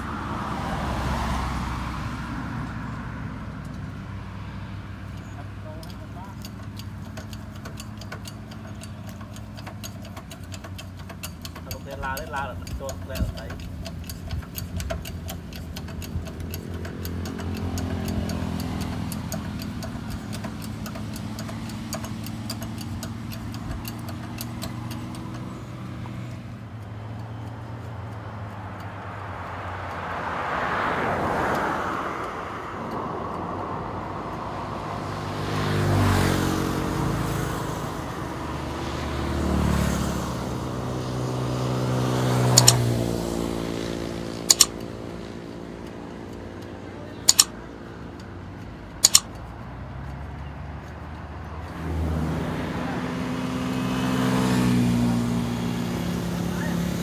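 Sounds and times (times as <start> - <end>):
small engine revving: 5.0 - 29.2, 30.0 - 49.3, 50.0 - 57.0
sharp metal clanks: 5.2 - 26.0, 42.5 - 43.0, 44.3 - 45.0, 47.2 - 47.6, 49.0 - 49.4.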